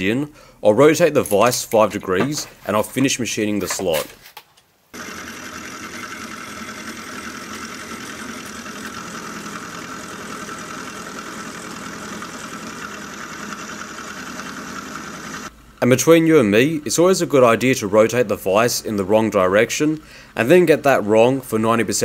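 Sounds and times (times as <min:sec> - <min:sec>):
milling machine cutting metal: 0:05.0 - 0:15.5.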